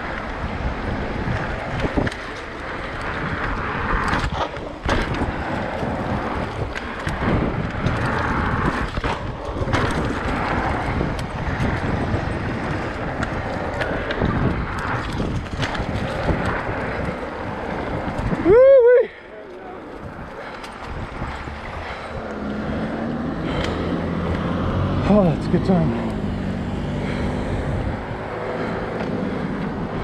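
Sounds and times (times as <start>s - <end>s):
wind on microphone: 0.0s - 19.2s, 19.8s - 25.0s, 26.1s - 30.0s
bike clicks and rattles: 0.0s - 30.0s
bike tyres rumbling on trail: 0.0s - 30.0s.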